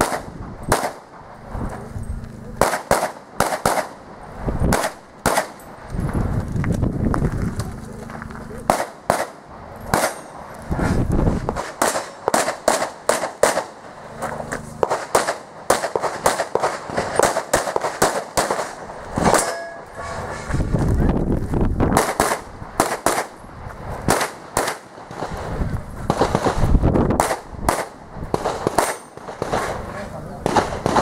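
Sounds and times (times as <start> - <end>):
handgun shots: 0.0 - 1.1, 2.6 - 4.0, 4.7 - 5.7, 8.7 - 10.3, 11.6 - 13.7, 27.2 - 29.8.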